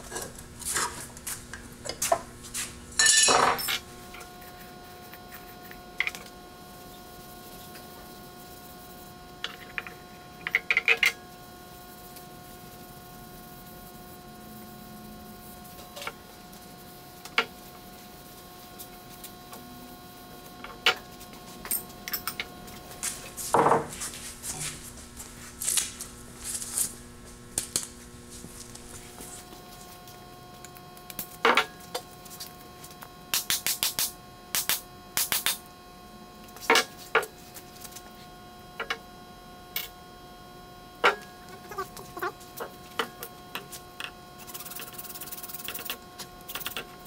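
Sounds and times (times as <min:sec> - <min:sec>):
hammer knocking on workbench: 0:23.6 - 0:23.9.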